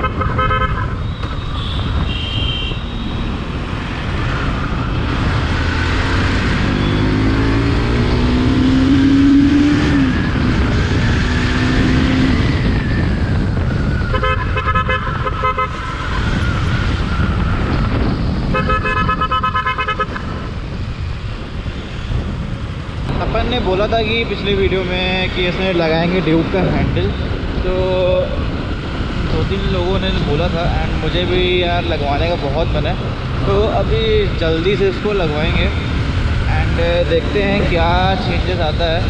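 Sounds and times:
vehicle horns honking: 0:00.0 - 0:03.3, 0:14.1 - 0:15.9, 0:18.5 - 0:20.4
wind rushing over microphone: 0:00.0 - 0:39.0
motorcycle engine revving: 0:02.8 - 0:13.3.

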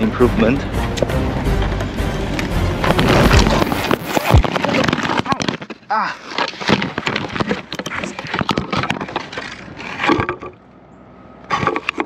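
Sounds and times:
clatter of pieces crashing on asphalt: 0:02.3 - 0:10.6.

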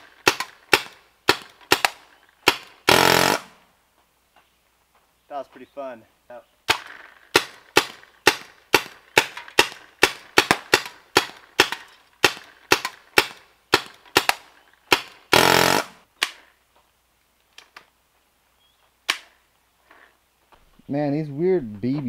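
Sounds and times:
paintball marker shots: 0:00.0 - 0:03.6, 0:06.7 - 0:16.5, 0:19.0 - 0:19.4.

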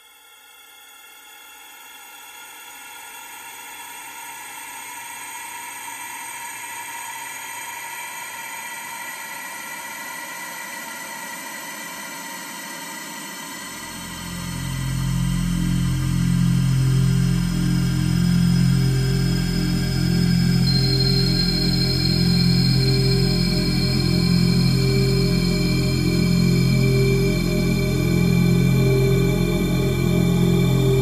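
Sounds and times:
electronic ambient drone: 0:13.0 - 0:31.0
deep bass: 0:14.0 - 0:31.0.

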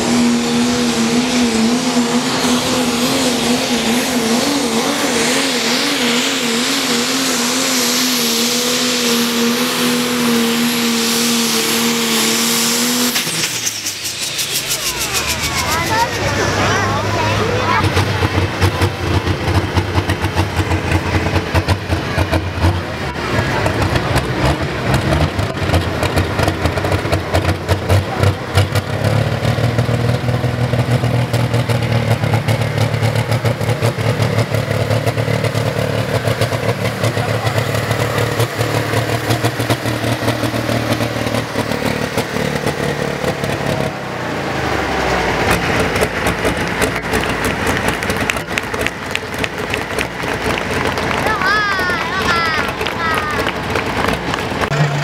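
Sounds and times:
loud tractor diesel engine: 0:00.0 - 0:55.0
noisy high-pitched sound: 0:10.3 - 0:18.2.

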